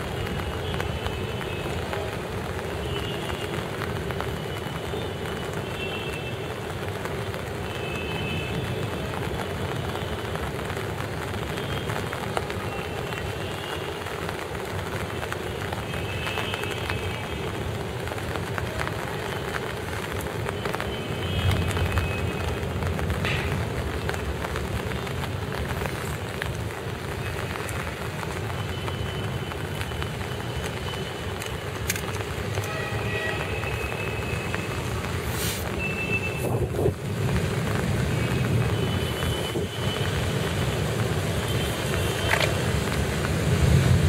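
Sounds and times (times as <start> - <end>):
steady rain: 0.0 - 44.0.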